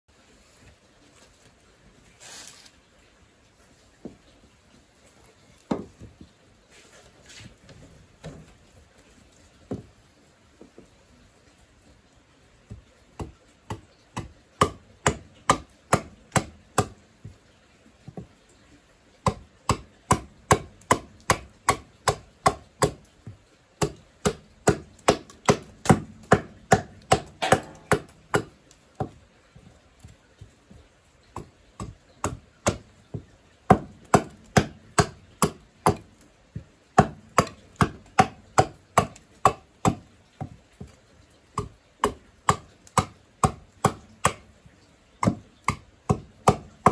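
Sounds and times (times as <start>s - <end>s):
hand axe chopping wood: 12.7s - 17.4s, 19.2s - 29.2s, 31.3s - 41.0s, 41.6s - 44.5s, 45.2s - 46.9s.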